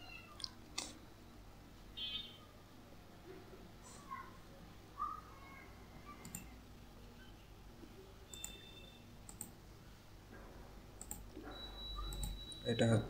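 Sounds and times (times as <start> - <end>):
computer mouse clicking: 6.2 - 6.5, 8.3 - 8.6, 9.3 - 9.6, 11.0 - 11.3, 12.1 - 12.4.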